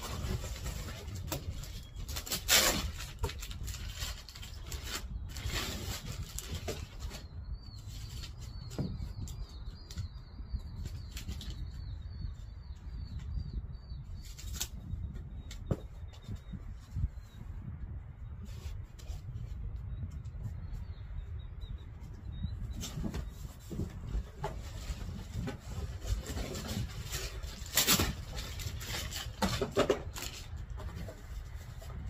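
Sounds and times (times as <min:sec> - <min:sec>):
small bird chirping: 0:07.0 - 0:17.5.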